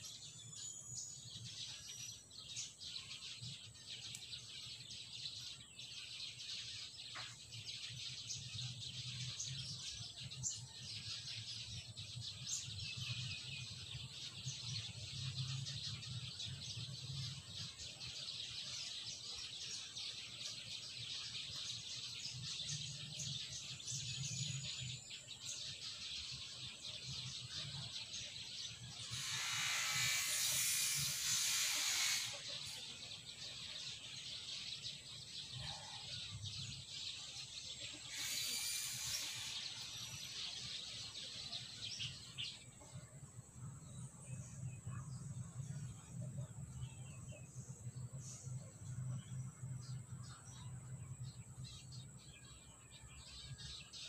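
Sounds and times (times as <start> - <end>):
birds chirping: 0.0 - 54.0
steady high hiss: 29.1 - 34.5, 36.9 - 42.5.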